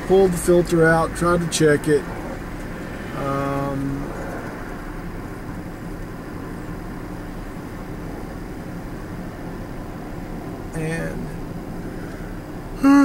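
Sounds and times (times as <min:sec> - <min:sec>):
car engine idling: 0:00.0 - 0:13.0
person saying uhh: 0:12.8 - 0:13.0.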